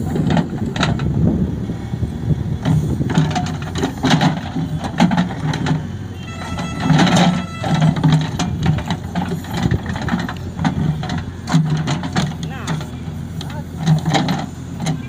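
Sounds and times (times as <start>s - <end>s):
diesel engine under load: 0.0s - 15.0s
sharp metal knocks and clanks: 2.6s - 15.0s.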